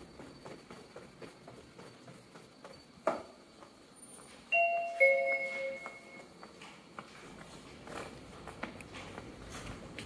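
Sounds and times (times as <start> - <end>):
footsteps on tiled floor: 0.0 - 10.0
two-note ding-dong chime: 4.6 - 6.2.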